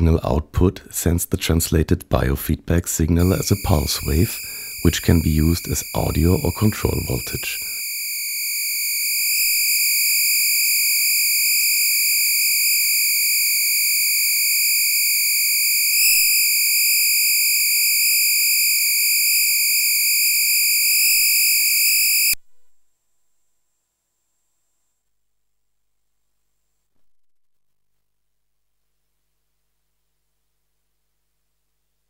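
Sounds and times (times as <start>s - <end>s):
high-pitched buzzy pulse tone: 3.2s - 22.4s.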